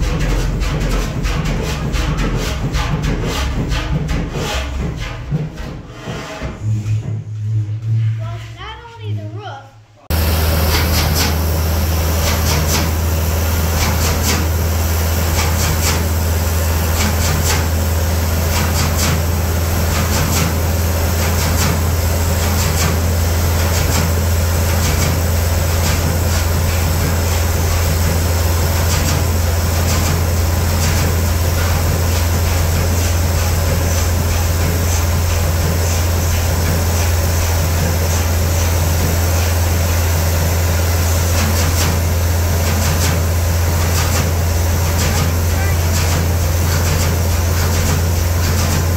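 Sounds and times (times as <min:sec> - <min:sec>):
diesel engine droning: 0:10.1 - 0:48.9.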